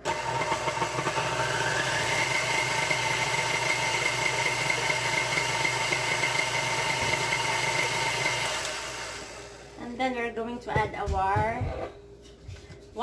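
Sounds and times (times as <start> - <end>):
stand mixer motor whining: 0.0 - 9.8.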